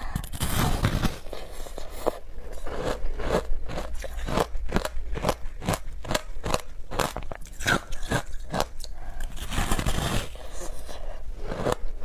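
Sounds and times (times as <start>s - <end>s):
crunching of shaved ice chewed: 0.1s - 12.0s.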